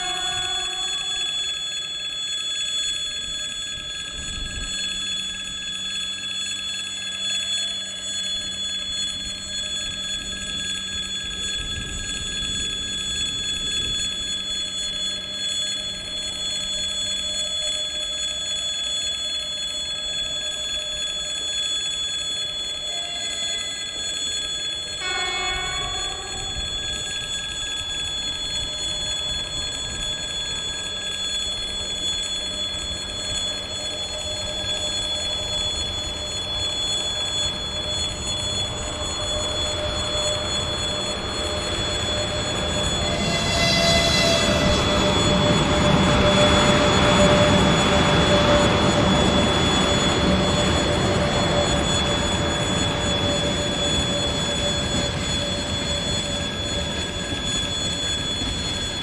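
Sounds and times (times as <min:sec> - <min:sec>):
level crossing signal ringing: 0:00.0 - 0:18.6, 0:22.5 - 0:59.0
pitched horn blast: 0:25.0 - 0:26.6, 0:42.7 - 0:47.3
train wagons rumbling on rails: 0:36.0 - 0:59.0.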